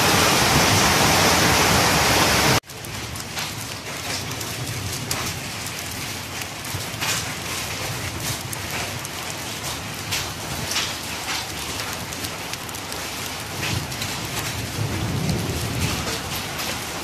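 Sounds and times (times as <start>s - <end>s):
rain spattering on concrete roof: 0.0s - 17.0s.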